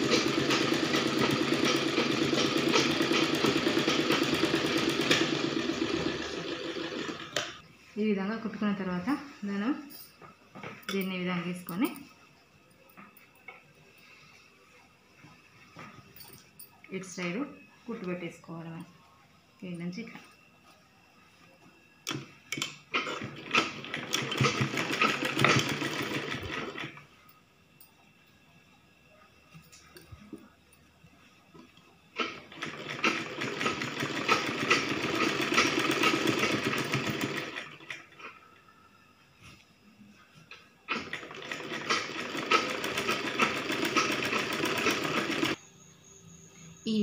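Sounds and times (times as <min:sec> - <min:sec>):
sewing machine stitching: 0:00.0 - 0:07.6, 0:22.1 - 0:27.0, 0:32.2 - 0:38.4, 0:40.9 - 0:45.6.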